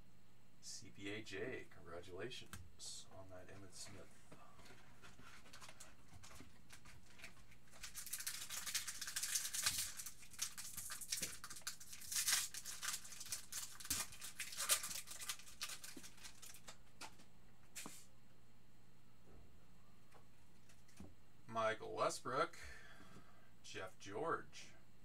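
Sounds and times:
wrapper tearing and crinkling: 0:06.7 - 0:16.7.

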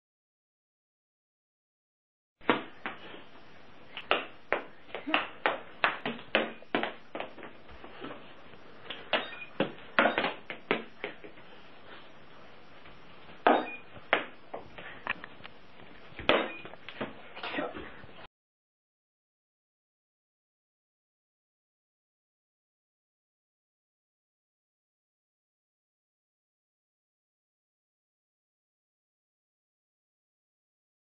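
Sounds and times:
short high beep: 0:09.2 - 0:10.2, 0:13.5 - 0:13.9.

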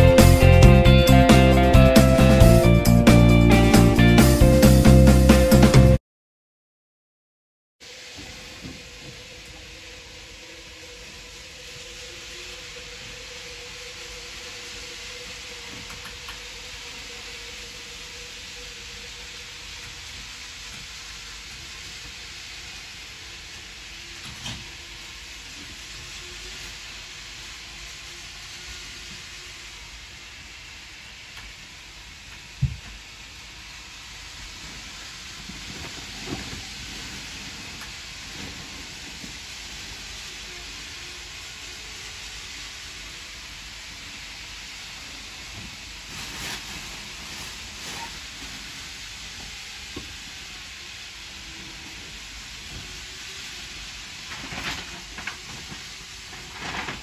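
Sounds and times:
train noise hiss through window: 0:00.0 - 0:06.0, 0:07.8 - 0:57.0.

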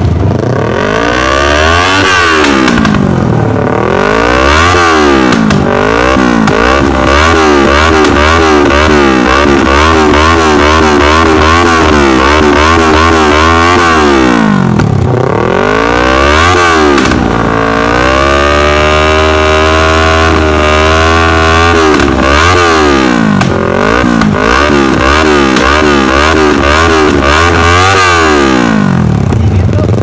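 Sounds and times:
motorcycle exhaust revving: 0:00.0 - 0:30.0.

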